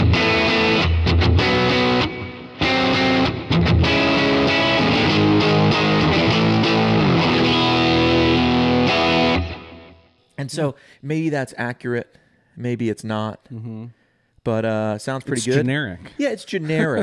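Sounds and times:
overdriven electric guitar chords: 0.0s - 10.2s.

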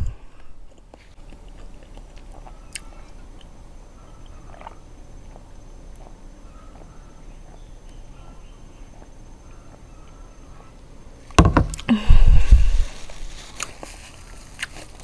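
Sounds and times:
swallowing: 4.3s - 6.2s.

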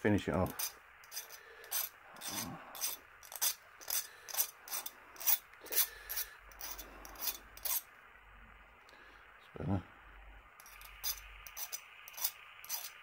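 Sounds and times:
hand file rasping on steel: 0.4s - 7.9s, 10.6s - 13.0s.

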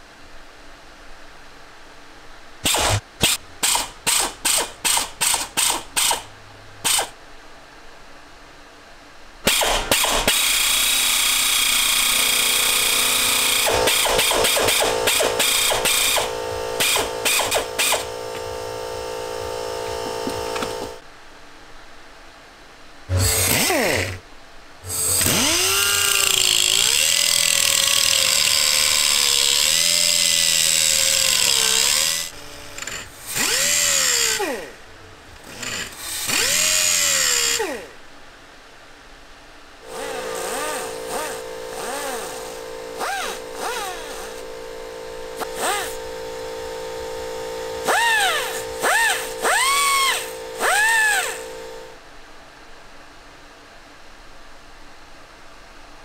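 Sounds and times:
electric drill whining: 9.5s - 21.0s, 23.1s - 24.2s, 24.8s - 34.7s, 35.4s - 37.9s, 39.8s - 52.0s
low machine hum: 11.9s - 21.9s, 22.9s - 38.7s, 39.4s - 53.0s.

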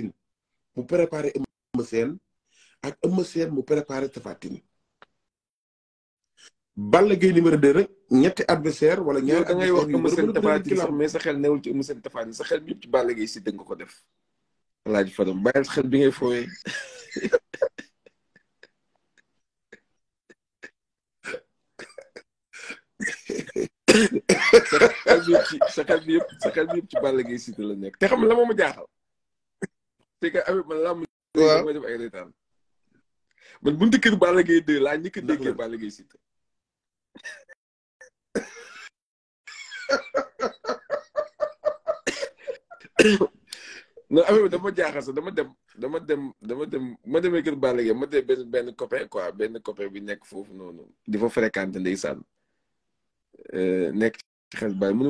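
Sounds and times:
men laughing: 9.4s - 10.9s, 16.5s - 18.7s, 21.8s - 28.8s, 39.5s - 43.8s.

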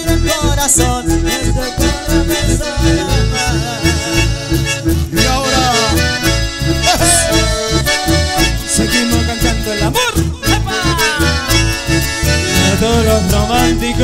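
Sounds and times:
acoustic guitar: 0.0s - 14.0s
button accordion melody: 0.0s - 14.0s
electric bass beat: 0.0s - 14.0s.

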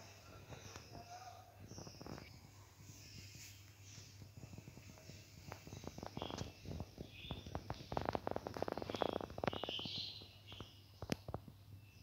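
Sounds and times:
crisp clicks and crackles: 1.7s - 2.4s, 3.2s - 11.6s
budgerigars chirping: 5.5s - 10.8s.

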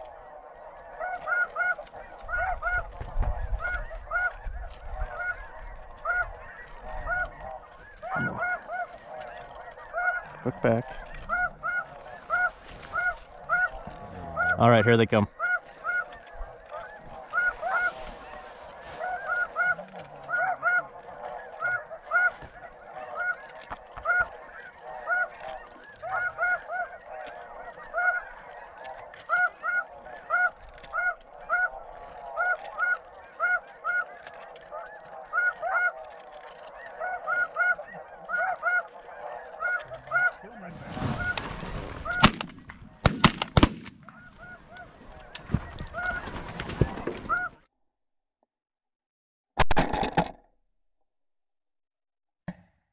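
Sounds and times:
snow geese honking: 0.0s - 47.6s
shotgun shots: 42.2s - 44.2s.

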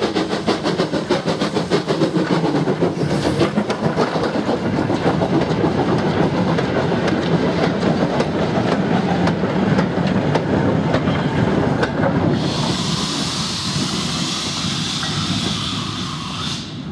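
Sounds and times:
steam hissing: 0.0s - 7.5s, 12.1s - 16.9s
train wheels rumbling and clicking: 0.0s - 16.9s.

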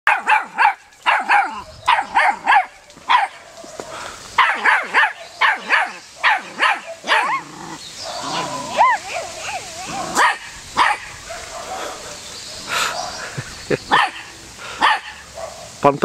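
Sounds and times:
puppy barking: 0.1s - 3.4s, 4.4s - 7.5s, 8.1s - 12.2s, 13.9s - 15.7s.

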